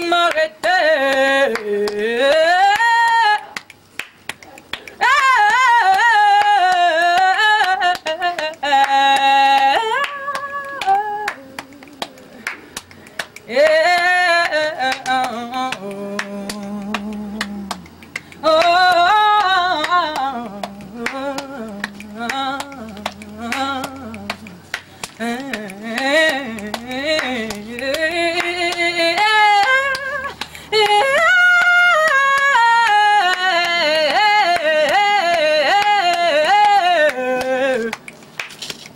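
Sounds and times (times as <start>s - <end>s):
woman singing a cappella: 0.0s - 38.1s
hands slapping chest: 3.6s - 6.0s, 37.1s - 38.9s.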